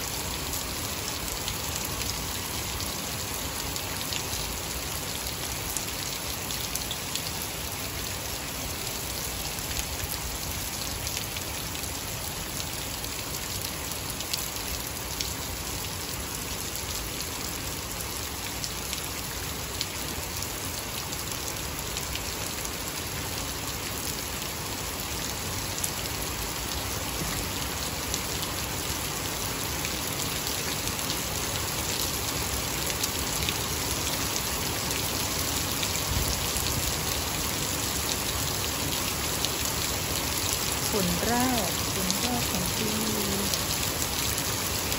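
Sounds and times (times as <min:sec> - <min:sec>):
heavy rain on grass: 0:00.0 - 0:44.9.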